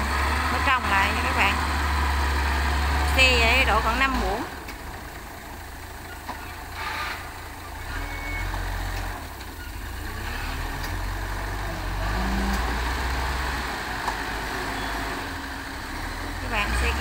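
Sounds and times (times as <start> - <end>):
diesel engine under load: 0.0 - 17.0.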